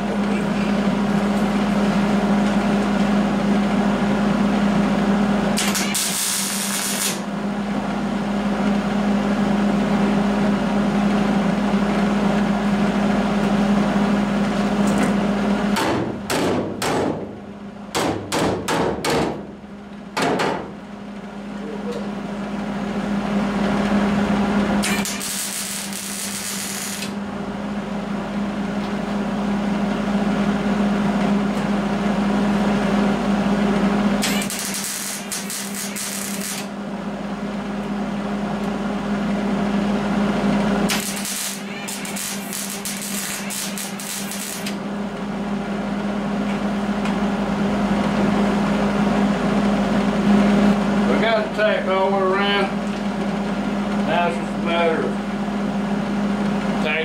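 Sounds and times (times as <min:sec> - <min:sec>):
arc welding crackling buzz: 0:05.6 - 0:07.3, 0:24.8 - 0:27.2, 0:34.1 - 0:36.8, 0:40.8 - 0:44.9.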